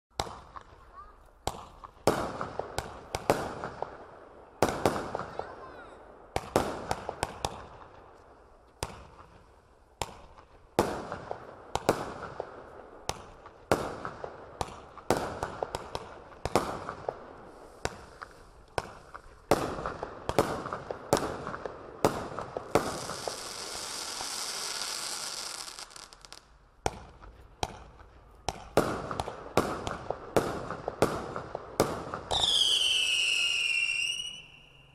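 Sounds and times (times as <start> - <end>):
firework launch reports and bursts: 8.8 - 34.9
firework hiss: 17.3 - 20.0, 22.6 - 26.4
falling firework whistle: 32.3 - 34.9.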